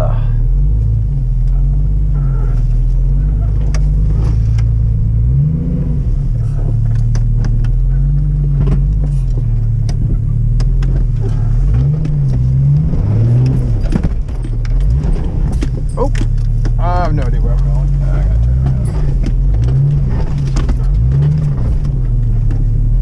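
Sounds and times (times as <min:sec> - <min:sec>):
car engine revving: 0:00.0 - 0:23.0
sharp knocks and clicks: 0:06.6 - 0:17.7, 0:18.4 - 0:22.8.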